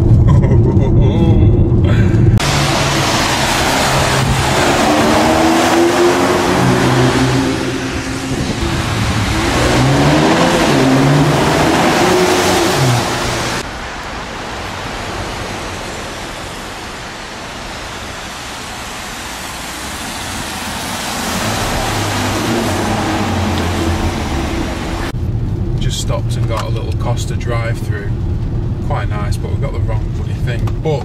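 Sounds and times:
car engine accelerating: 0:00.0 - 0:14.0, 0:18.9 - 0:30.8
tyres hissing on wet road: 0:02.4 - 0:25.1.

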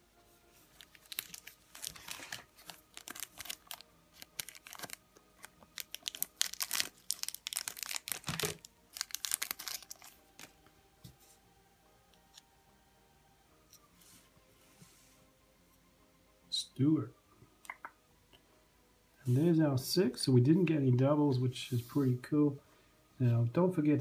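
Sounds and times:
plastic wrapper crinkling and tearing: 0:00.8 - 0:10.6.

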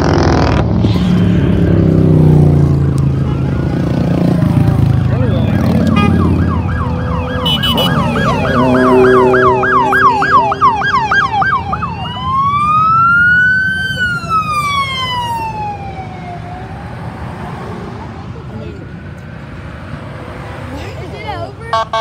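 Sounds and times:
motorcycles passing: 0:00.0 - 0:22.0
police siren yelp and wail: 0:03.1 - 0:18.2.

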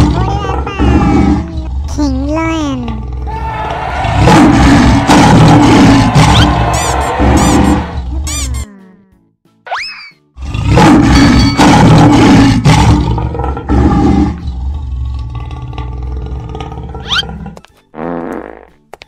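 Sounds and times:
lion roaring: 0:00.0 - 0:01.9, 0:02.9 - 0:08.2, 0:10.4 - 0:17.6
background music: 0:00.0 - 0:15.0, 0:15.6 - 0:19.0.

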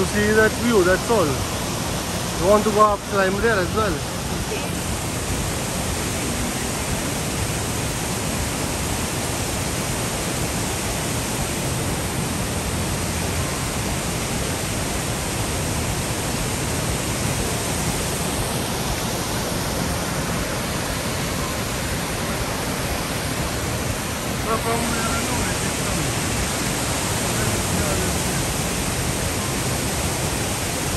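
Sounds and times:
waterfall rushing: 0:00.0 - 0:30.9.

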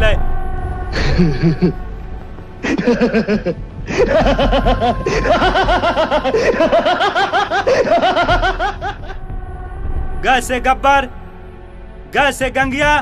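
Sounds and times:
person laughing loudly: 0:02.7 - 0:09.2.

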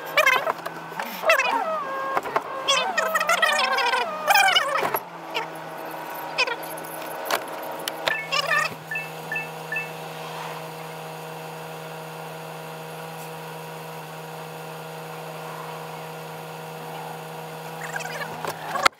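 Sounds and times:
truck engine low hum: 0:00.0 - 0:18.9
short high chirps: 0:08.1 - 0:10.2.

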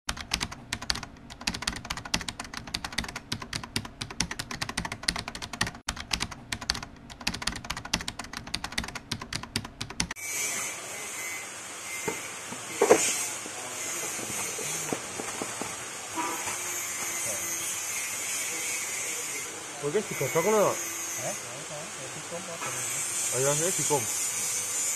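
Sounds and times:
keyboard typing clicks: 0:00.1 - 0:10.2.

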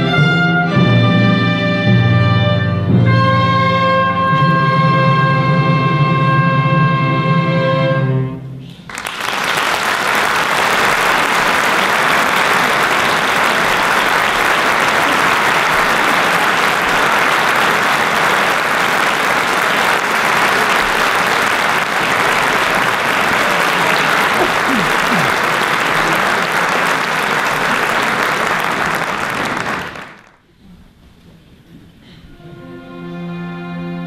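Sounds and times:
audience applause: 0:08.9 - 0:30.4.

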